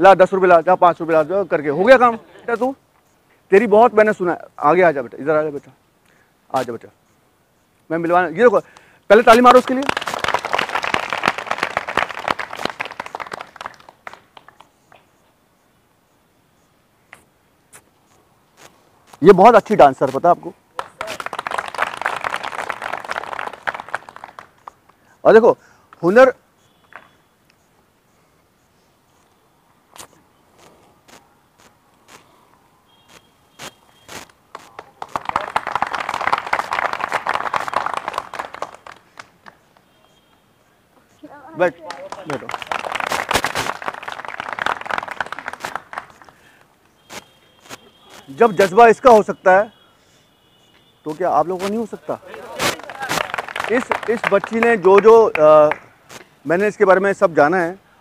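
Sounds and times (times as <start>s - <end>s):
people clapping: 9.1s - 15.0s, 20.0s - 25.0s, 26.8s - 27.1s, 34.1s - 39.9s, 41.6s - 48.8s, 51.5s - 56.3s
crowd applauding: 9.3s - 14.7s, 20.8s - 25.0s, 34.5s - 39.7s, 41.6s - 46.5s, 51.8s - 55.9s.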